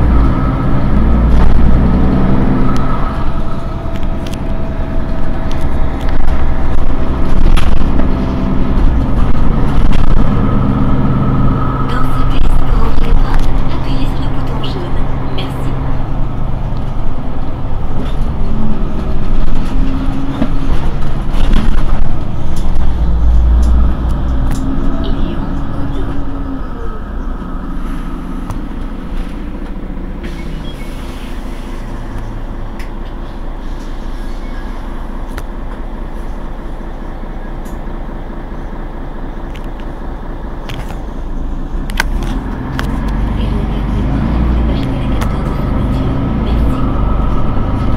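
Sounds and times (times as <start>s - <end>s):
diesel bus engine running: 0.0s - 47.9s.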